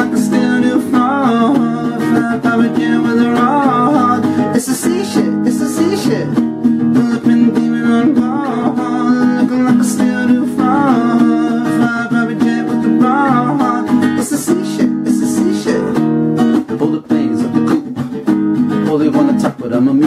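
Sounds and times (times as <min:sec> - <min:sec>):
person singing wordless runs: 0:00.0 - 0:16.0
acoustic guitar playing: 0:00.0 - 0:20.0.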